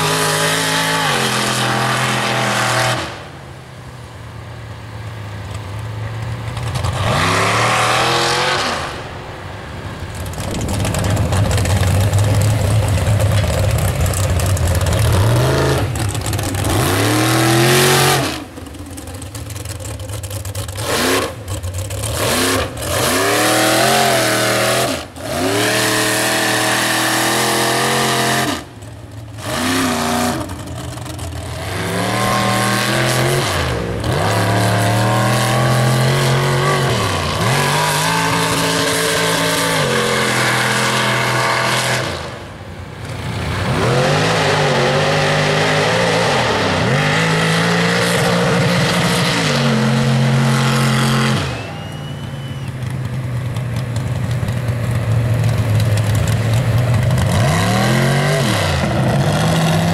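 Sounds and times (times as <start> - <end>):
mud truck engines revving: 0.0 - 59.9.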